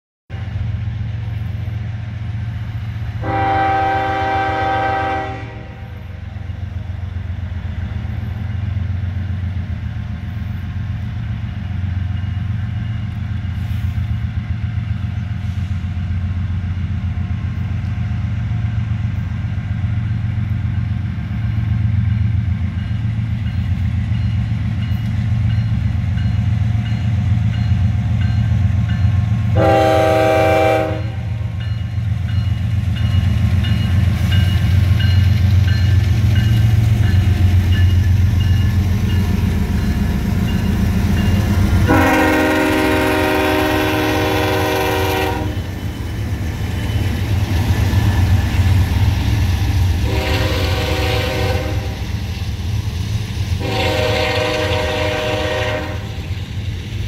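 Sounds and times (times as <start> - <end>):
diesel locomotive engine rumbling: 0.3 - 57.0
train air horn blast: 3.2 - 6.2, 29.5 - 31.5, 41.8 - 45.7, 50.0 - 52.1, 53.6 - 56.2.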